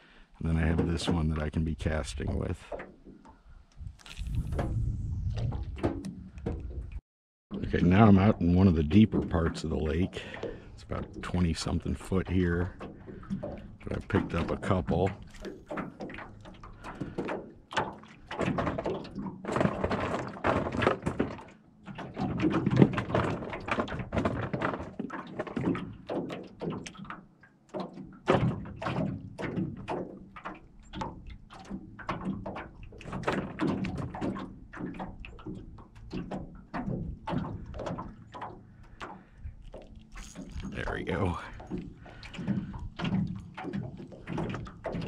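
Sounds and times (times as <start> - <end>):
waves slapping boat hull: 0.0 - 45.0.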